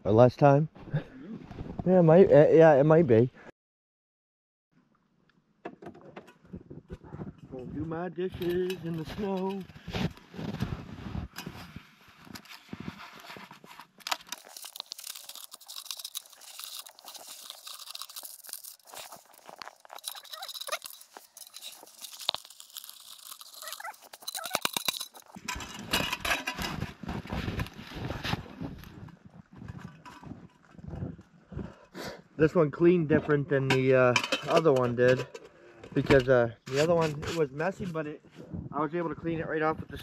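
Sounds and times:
snow crunching and scraping: 7.5s - 31.8s.

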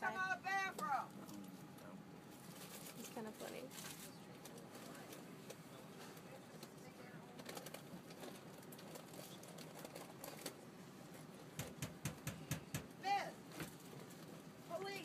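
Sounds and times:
faint murmur of voices: 0.0s - 8.5s.

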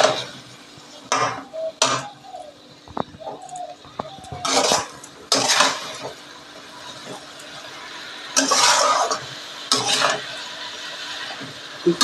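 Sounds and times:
metal spatula scraping a pan: 4.4s - 11.6s.

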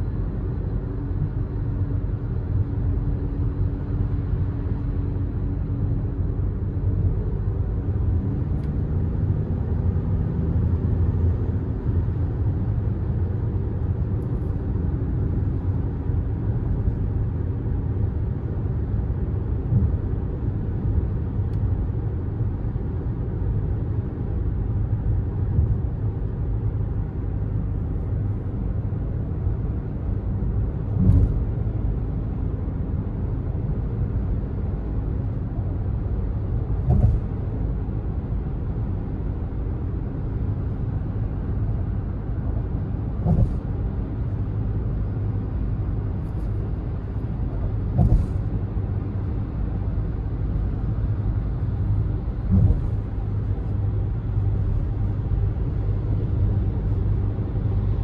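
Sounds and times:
diesel engine and tyre rumble: 0.0s - 58.0s
brief thump: 30.9s - 31.5s, 36.8s - 37.4s, 43.2s - 43.7s, 47.8s - 48.5s, 52.5s - 53.3s.

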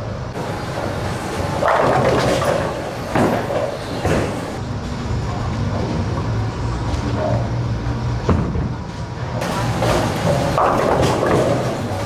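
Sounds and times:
bowling ball rolling: 0.4s - 4.6s, 9.4s - 12.0s
bowling pins clattering: 0.4s - 4.6s, 9.4s - 12.0s.

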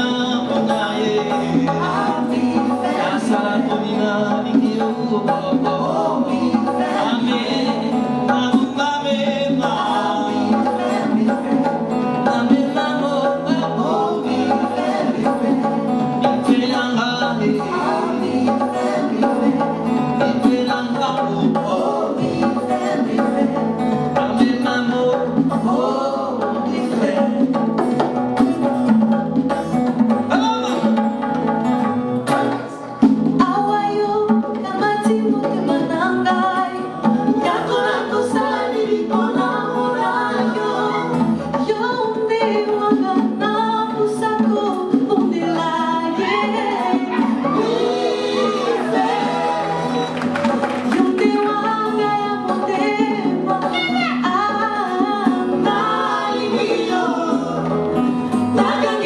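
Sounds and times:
man singing: 0.0s - 27.9s, 30.2s - 31.2s
percussion: 0.0s - 59.0s
plucked acoustic guitar: 0.0s - 59.0s.

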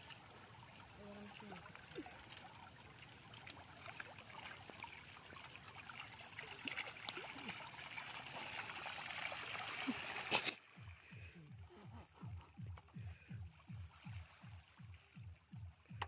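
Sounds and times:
water trickling and dripping: 0.0s - 16.0s.

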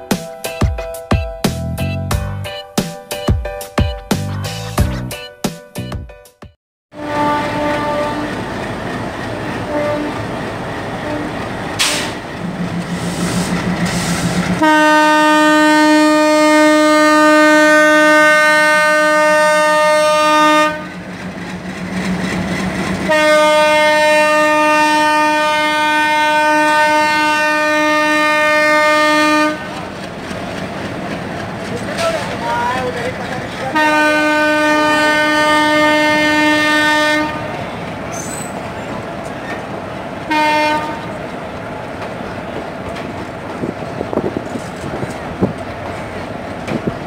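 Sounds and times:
locomotive horn blasts: 6.9s - 8.4s, 9.6s - 10.3s, 11.0s - 12.2s, 14.6s - 20.9s, 23.1s - 29.8s, 33.7s - 37.5s, 40.3s - 41.2s
diesel locomotive engine running: 7.0s - 47.0s.

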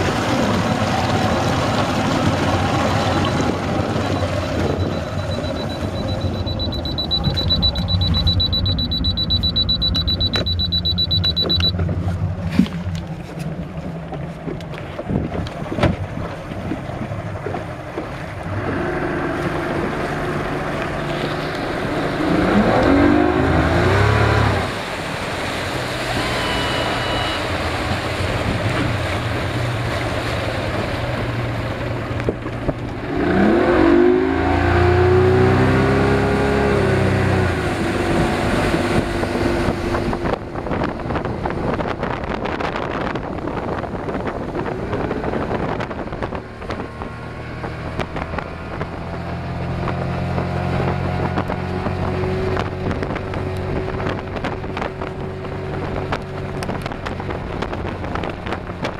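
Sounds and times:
outboard motor running: 0.0s - 58.9s
steady high-pitched tone: 4.1s - 11.8s, 26.0s - 27.9s.

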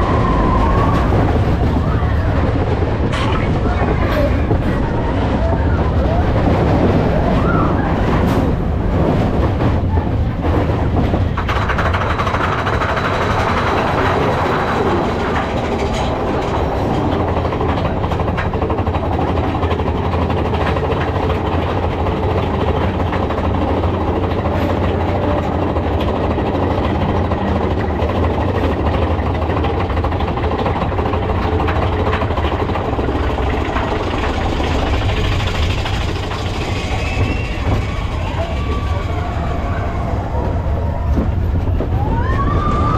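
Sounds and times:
roller coaster cars rumbling on rails: 0.0s - 42.9s.

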